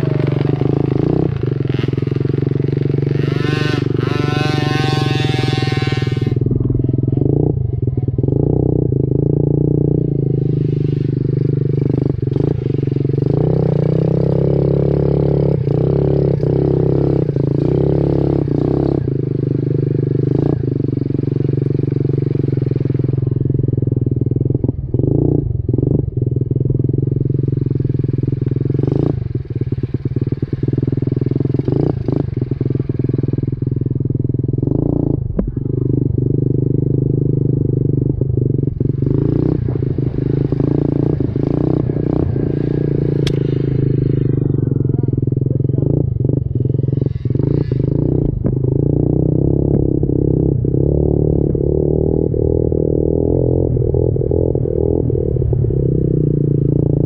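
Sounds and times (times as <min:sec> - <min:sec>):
small motorcycle engine running: 0:00.0 - 0:57.0
motorcycle knocks and rattles: 0:44.4 - 0:49.0, 0:49.6 - 0:50.3.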